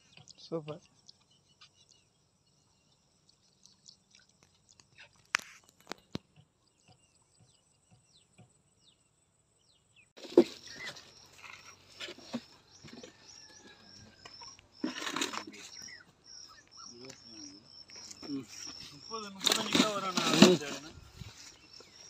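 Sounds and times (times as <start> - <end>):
bird chirps: 0.0 - 22.0
rustling and handling noise: 18.0 - 22.0.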